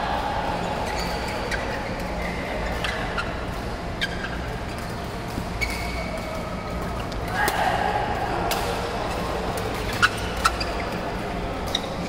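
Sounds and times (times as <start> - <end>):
din of large hall: 0.0 - 12.0
shoes squeaking on court: 0.6 - 7.3, 9.6 - 12.0.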